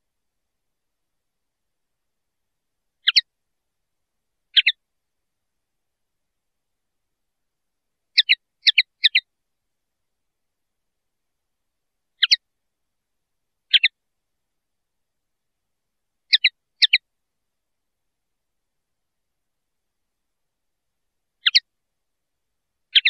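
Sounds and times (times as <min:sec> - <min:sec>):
bird high double chirps: 0:04.6 - 0:04.8, 0:08.2 - 0:09.2, 0:12.2 - 0:12.4, 0:13.7 - 0:13.9, 0:16.3 - 0:17.0, 0:21.4 - 0:21.6.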